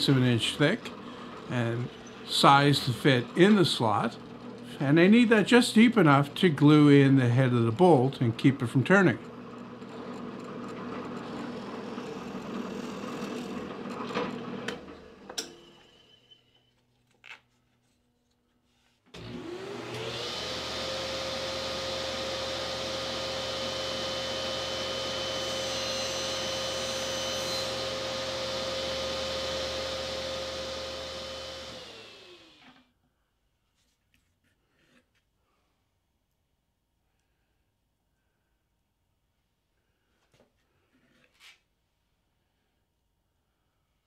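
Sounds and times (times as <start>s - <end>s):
electric drill boring wood: 0.0s - 6.5s, 7.4s - 15.3s, 19.2s - 32.9s
table saw whine: 0.0s - 16.7s, 19.2s - 32.8s.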